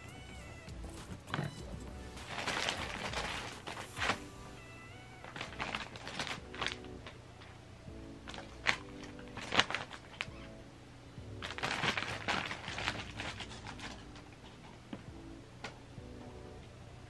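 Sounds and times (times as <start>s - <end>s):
paper crinkling under cat's paws: 0.0s - 7.5s, 8.3s - 10.5s, 11.4s - 14.8s.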